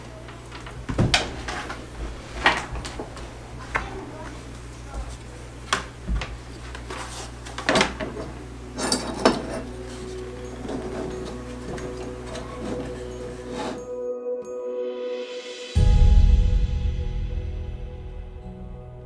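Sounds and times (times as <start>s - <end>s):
faint music: 0.0s - 14.4s.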